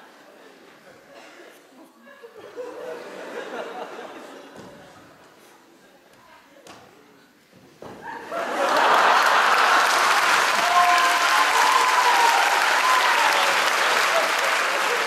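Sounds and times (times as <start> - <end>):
audience applause: 8.2 - 15.0.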